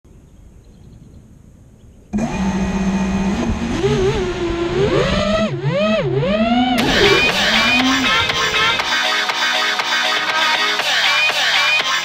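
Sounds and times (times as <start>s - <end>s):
quadcopter propellers whining: 2.1s - 10.7s.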